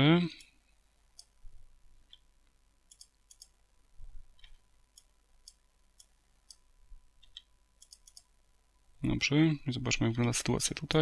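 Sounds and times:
mouse and keyboard clicks: 2.9s - 3.5s, 7.2s - 8.3s.

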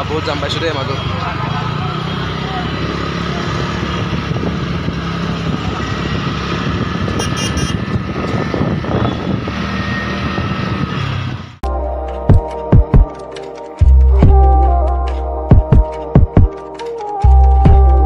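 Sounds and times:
motorcycle engine running: 0.0s - 9.6s
road and traffic noise: 0.0s - 11.6s
short high beeps: 7.2s - 7.8s.

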